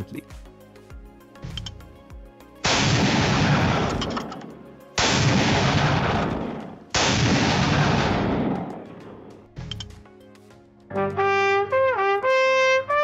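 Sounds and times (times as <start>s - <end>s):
rifle gunfire blasts: 2.7s - 4.4s, 5.0s - 9.2s.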